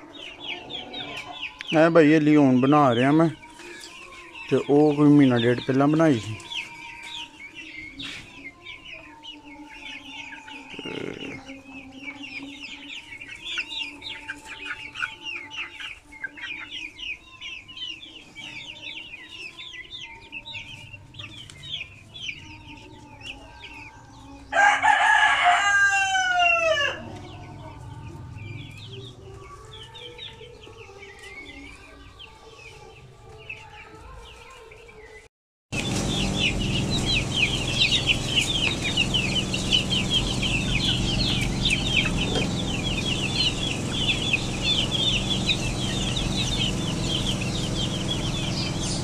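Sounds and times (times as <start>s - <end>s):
chicks peeping: 0.0s - 49.0s
rooster crowing: 24.5s - 27.8s.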